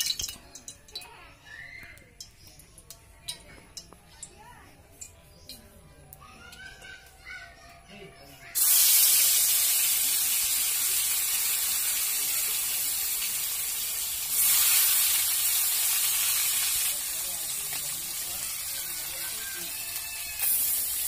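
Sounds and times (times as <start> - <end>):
fish sizzling in hot oil: 0.0 - 1.1, 8.6 - 21.0.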